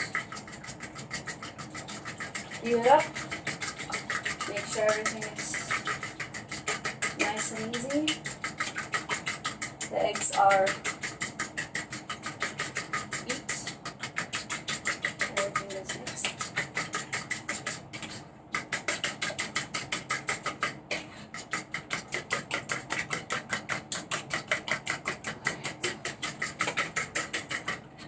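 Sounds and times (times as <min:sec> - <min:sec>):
fork beating eggs in plastic bowl: 0:00.0 - 0:28.0.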